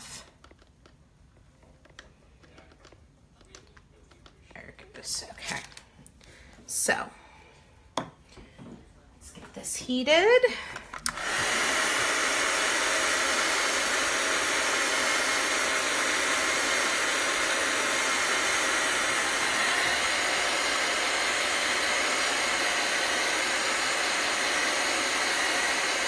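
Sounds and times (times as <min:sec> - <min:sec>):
hot-air blower running: 0:10.4 - 0:26.0.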